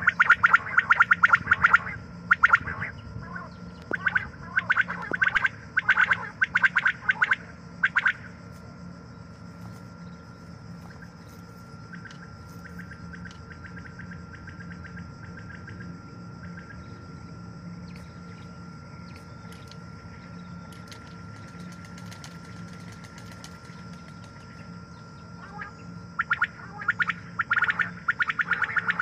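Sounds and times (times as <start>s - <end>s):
quail calling: 0.0s - 8.3s, 25.4s - 29.0s
low hum and hiss: 0.0s - 29.0s.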